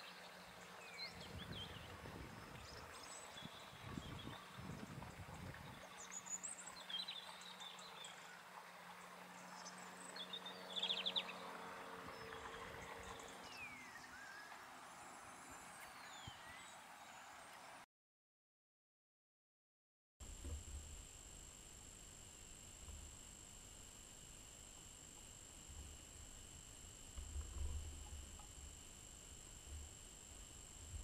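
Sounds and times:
bird calls: 0.0 - 17.2
faint steady hum: 0.0 - 17.8, 20.2 - 31.0.

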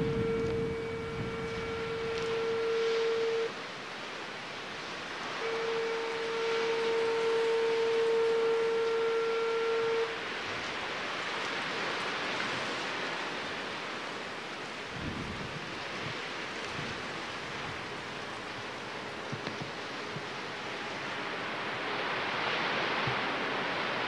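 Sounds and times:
horn blast: 0.0 - 3.6, 5.2 - 13.0
steady rushing noise: 0.0 - 8.6, 9.4 - 24.0.

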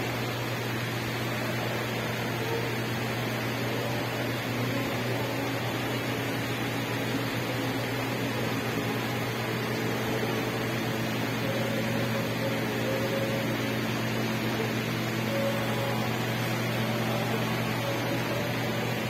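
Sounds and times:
ventilation hum and hiss: 0.0 - 19.0.

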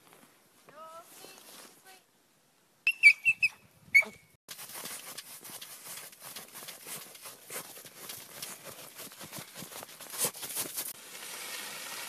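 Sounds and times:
dog yipping: 2.9 - 4.2
dog digging in snow: 4.5 - 11.0.

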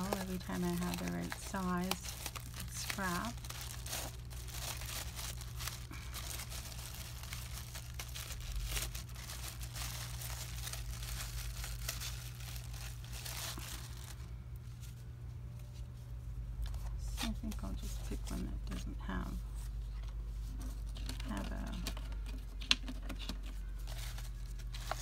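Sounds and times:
plastic bag crinkling: 0.0 - 14.3.

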